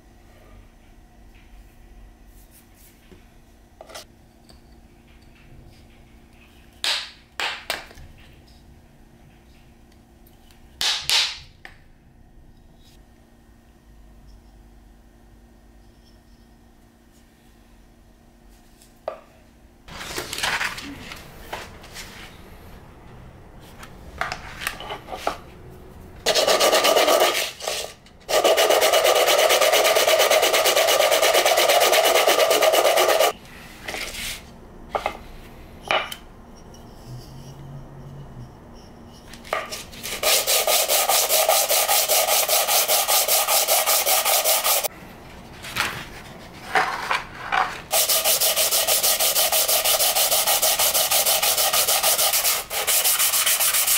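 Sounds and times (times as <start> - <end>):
sanding block on sandpaper: 26.3 - 33.4, 40.0 - 44.9, 47.9 - 53.9
sandpaper sheets rustling: 39.8 - 44.9, 45.6 - 53.9.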